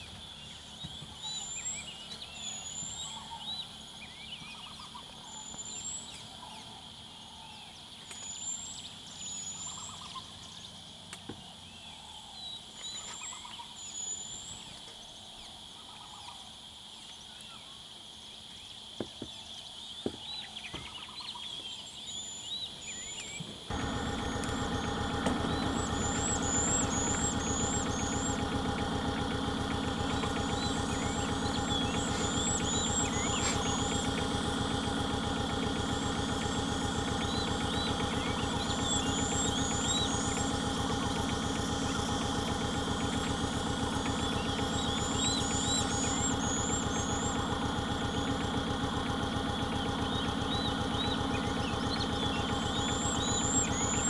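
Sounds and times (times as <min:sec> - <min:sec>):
birds chirping: 0:00.0 - 0:14.8, 0:18.7 - 0:54.0
vehicle engine idling: 0:23.7 - 0:54.0.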